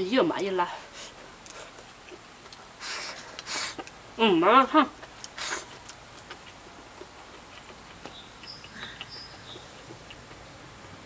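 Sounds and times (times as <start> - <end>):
chewing and chopsticks clicking: 1.4 - 2.6, 5.0 - 10.5
insect hum: 7.7 - 10.7
bird chirps: 8.1 - 9.8.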